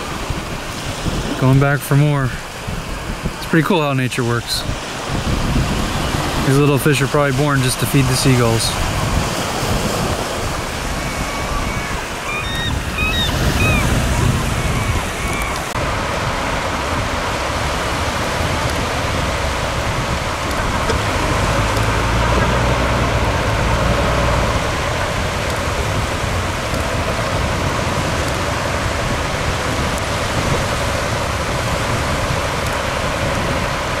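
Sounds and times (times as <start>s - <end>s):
surf rushing: 0.0s - 34.0s
wind: 0.0s - 34.0s
diesel engine rumbling: 8.4s - 34.0s.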